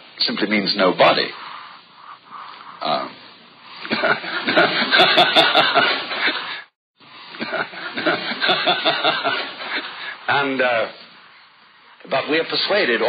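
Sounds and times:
audience laughing: 0:07.4 - 0:10.2.

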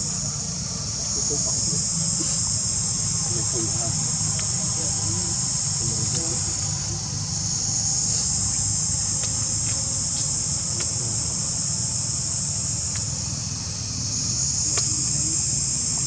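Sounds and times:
insects droning: 0:00.0 - 0:16.0.

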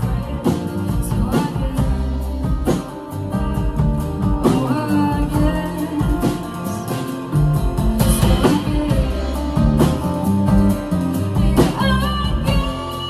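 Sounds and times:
drum kit: 0:00.0 - 0:13.0
electric guitar: 0:00.0 - 0:13.0
strummed acoustic guitars: 0:00.0 - 0:13.0.

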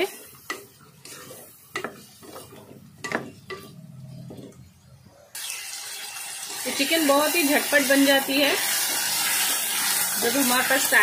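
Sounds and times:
faint frying sizzle: 0:00.0 - 0:04.7, 0:05.4 - 0:11.0
spatula scraping a pot: 0:00.1 - 0:04.7.

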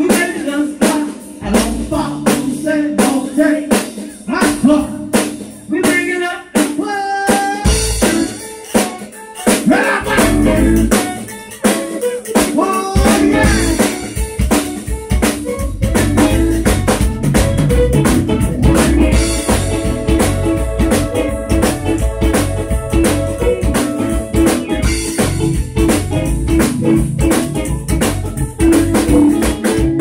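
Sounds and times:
zydeco band playing: 0:00.0 - 0:30.0
heavy bass: 0:01.4 - 0:02.6, 0:04.3 - 0:06.1, 0:07.7 - 0:08.4, 0:10.0 - 0:11.1, 0:13.0 - 0:30.0
button accordion lead: 0:07.5 - 0:30.0.

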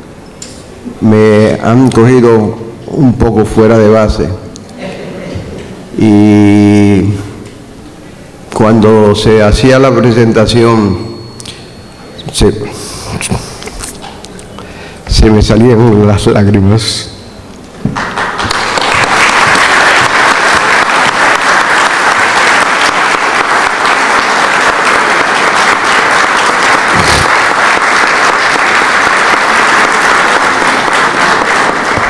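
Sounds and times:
audience applauding: 0:17.9 - 0:32.0.

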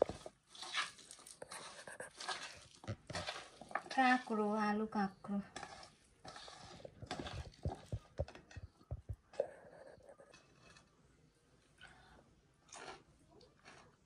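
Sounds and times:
hand kneading food in metal bowl: 0:00.0 - 0:11.0.

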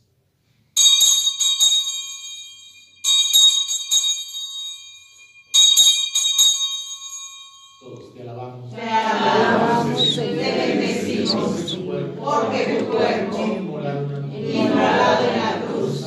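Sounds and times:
altar bells ringing: 0:00.8 - 0:10.5.

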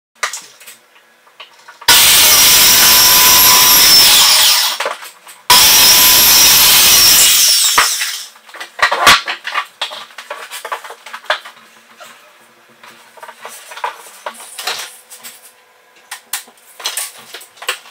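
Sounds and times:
circular saw cutting board: 0:01.9 - 0:04.9, 0:05.5 - 0:08.3
boards knocking and clattering: 0:07.8 - 0:11.6.

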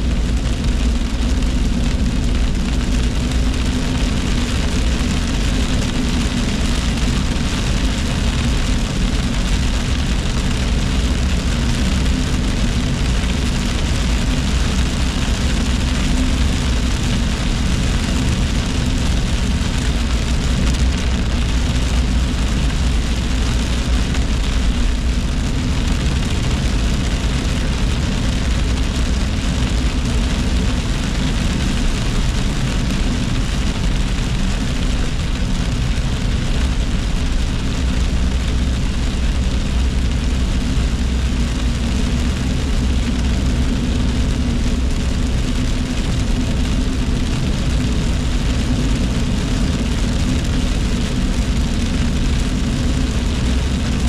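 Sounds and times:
car engine and road rumble: 0:00.0 - 0:54.0
rain on windshield: 0:00.0 - 0:54.0.

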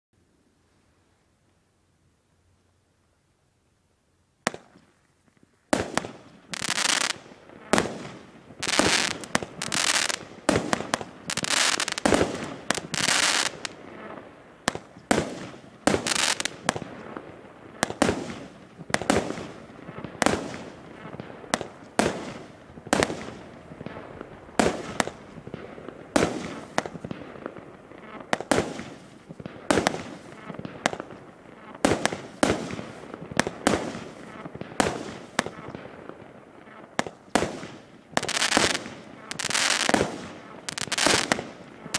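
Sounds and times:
fireworks bangs: 0:05.7 - 0:41.9
fireworks hiss: 0:07.8 - 0:13.8, 0:15.2 - 0:16.7.

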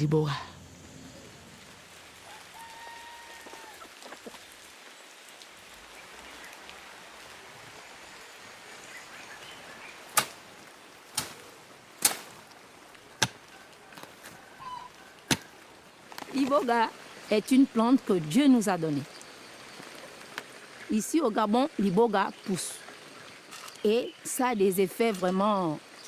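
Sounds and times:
light rain hiss: 0:00.0 - 0:26.0
digging tool chopping into earth: 0:13.2 - 0:13.4, 0:15.3 - 0:15.5.

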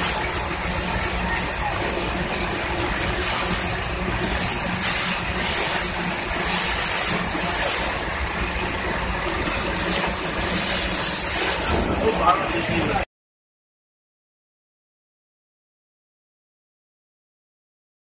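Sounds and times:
heavy rain on vehicle: 0:00.0 - 0:13.0
engine humming: 0:00.0 - 0:13.1.

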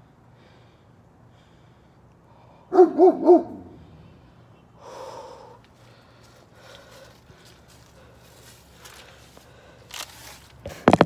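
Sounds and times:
dog barking: 0:02.7 - 0:03.8.

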